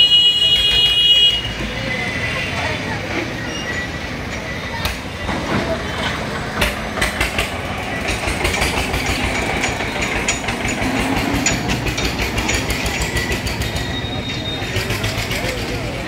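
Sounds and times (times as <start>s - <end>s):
tractor engine running: 4.2s - 16.0s
steel trailer rattling and knocking: 5.2s - 16.0s.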